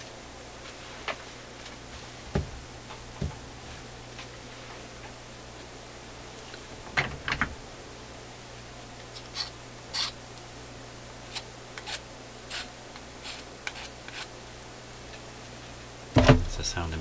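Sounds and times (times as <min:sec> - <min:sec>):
steady low hum: 0:00.0 - 0:17.0
file scraping metal tip: 0:09.2 - 0:10.2, 0:11.3 - 0:14.3.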